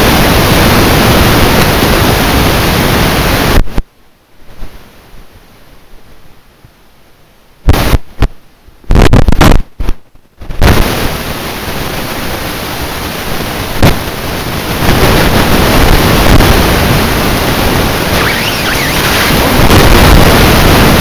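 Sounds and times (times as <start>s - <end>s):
wind buffeting microphone: 9.0s - 21.0s.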